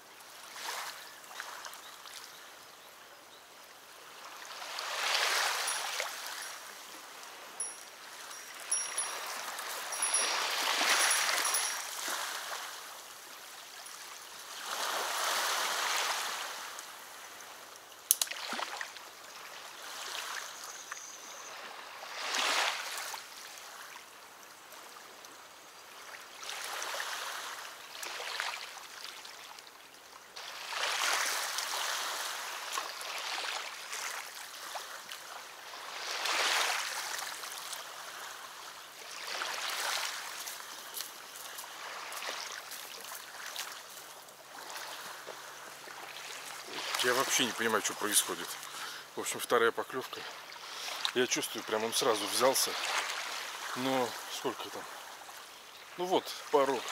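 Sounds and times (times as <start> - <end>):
river water washing against bank: 4.0 - 20.5, 30.4 - 56.9
faint high bird chirps: 20.5 - 21.7.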